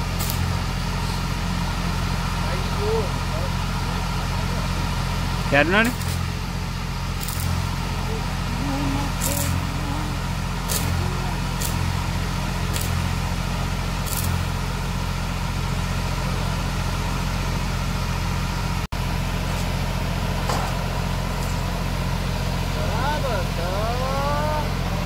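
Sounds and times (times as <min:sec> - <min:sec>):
welding arc crackling hiss: 0:00.0 - 0:02.0, 0:05.8 - 0:15.0
welding power source hum: 0:00.0 - 0:25.0.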